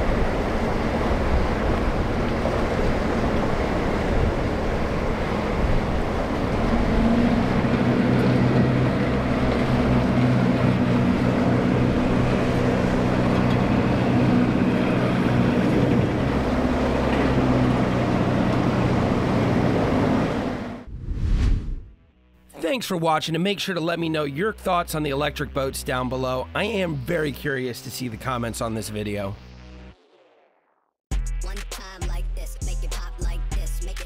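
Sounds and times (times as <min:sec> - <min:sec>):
wind and waves: 0:00.0 - 0:20.8
boat engine droning: 0:00.0 - 0:20.9.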